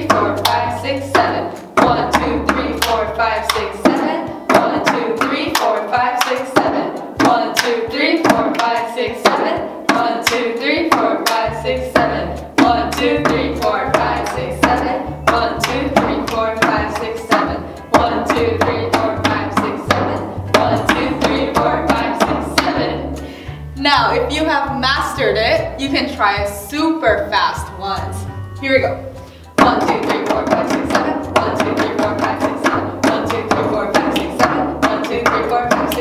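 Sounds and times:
bass line: 0.0s - 8.8s, 9.4s - 36.0s
background music: 0.0s - 36.0s
hands clapping and slapping: 1.8s - 9.4s.

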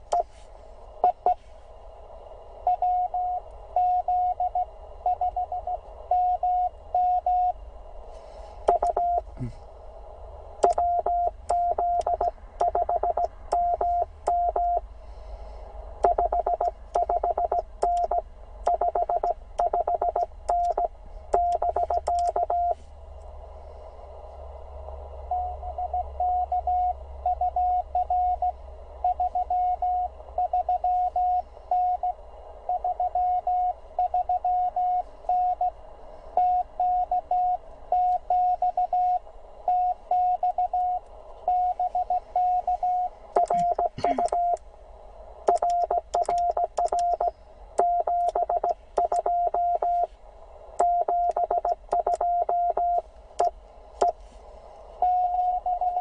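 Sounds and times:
morse code tone: 8.7s - 9.3s, 10.6s - 14.8s, 16.0s - 22.8s, 36.4s - 44.6s, 45.5s - 50.1s, 50.8s - 54.2s.

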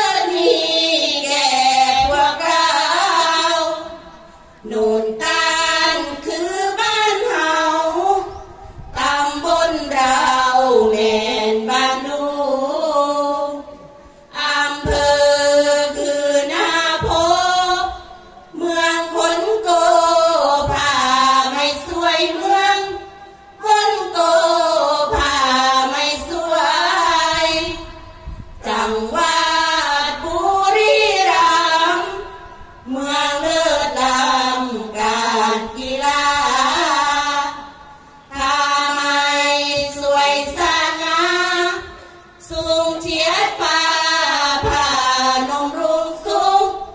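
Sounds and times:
women chanting unaccompanied: 0.0s - 46.9s.

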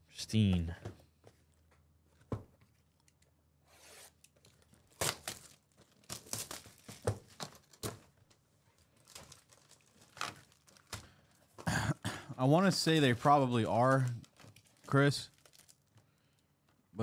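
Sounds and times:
plastic shrink-wrap crackling: 4.4s - 11.4s, 12.9s - 16.4s.

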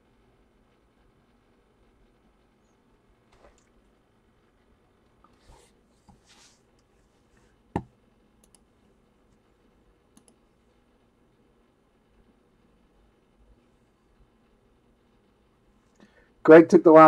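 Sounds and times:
soft rustles: 5.2s - 7.6s
computer mouse clicks: 7.8s - 8.7s, 10.1s - 10.4s.

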